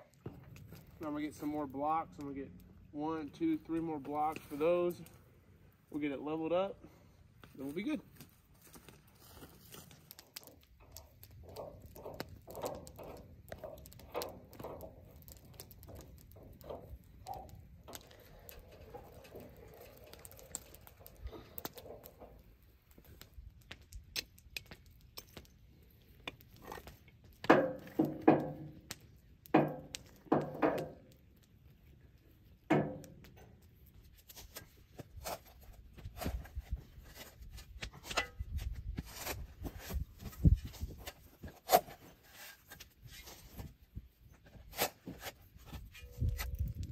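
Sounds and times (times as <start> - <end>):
shovel scraping: 39.0 - 43.6, 44.5 - 46.6.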